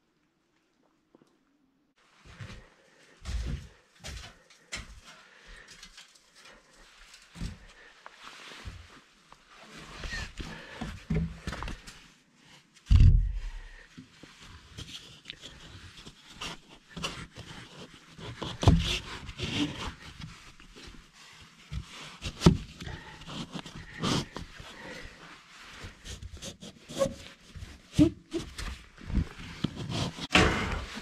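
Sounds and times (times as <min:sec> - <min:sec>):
heavy low thump: 0:12.9 - 0:13.6
knocks and scraping on wood: 0:16.4 - 0:20.4, 0:25.8 - 0:31.0.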